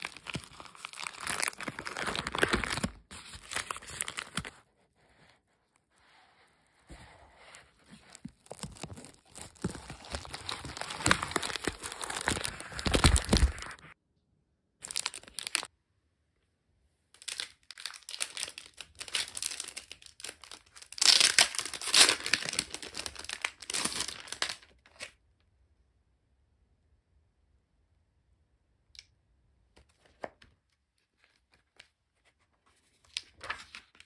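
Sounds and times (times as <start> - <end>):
plastic wrapping crinkling and tearing: 0.0 - 5.2, 7.4 - 14.0, 14.8 - 15.7, 17.2 - 25.1.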